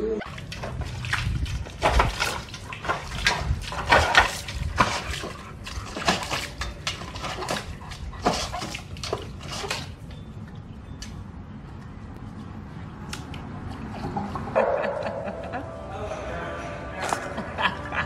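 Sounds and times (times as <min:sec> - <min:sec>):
dog paw splashing in metal bowl: 0:00.2 - 0:10.3.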